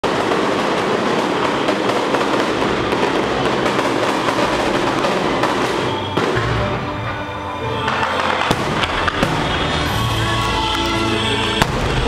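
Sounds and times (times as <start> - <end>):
firecrackers crackling: 0.0 - 12.0.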